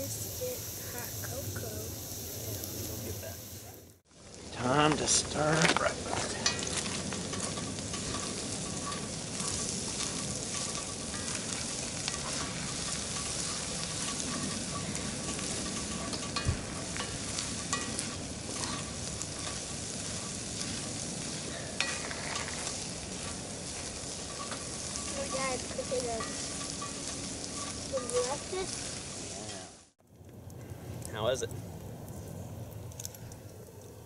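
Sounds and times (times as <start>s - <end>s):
food sizzling in a skillet: 0.0s - 30.0s
spoon scraping a pan: 6.2s - 29.6s.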